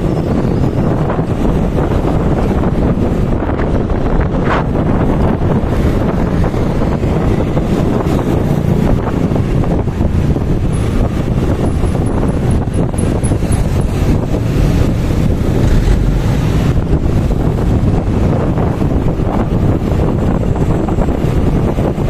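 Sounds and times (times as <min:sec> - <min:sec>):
road noise: 0:00.0 - 0:22.0
wind buffeting microphone: 0:00.0 - 0:22.0
scooter engine: 0:06.1 - 0:21.6.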